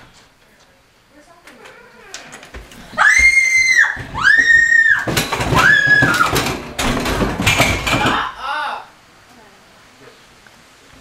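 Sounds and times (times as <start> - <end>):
girl screaming: 2.9 - 6.3
loud knocking and clatter: 4.0 - 8.3.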